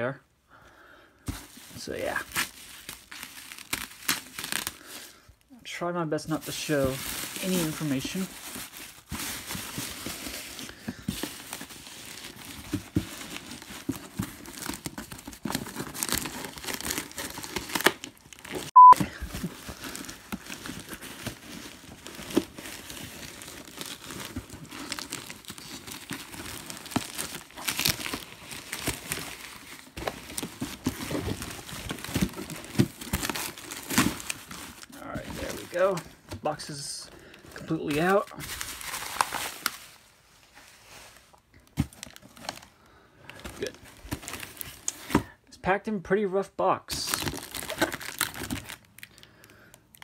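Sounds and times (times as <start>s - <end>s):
plastic bag crinkling: 1.5s - 5.1s, 6.3s - 36.6s, 47.0s - 50.0s
short loud beep: 18.8s - 19.0s.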